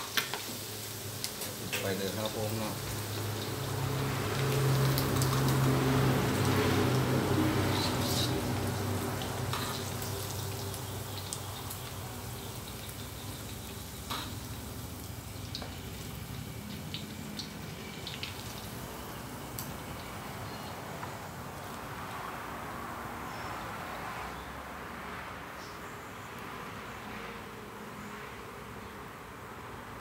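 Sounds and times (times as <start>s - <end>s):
food deep-frying in hot oil: 0.0s - 22.3s.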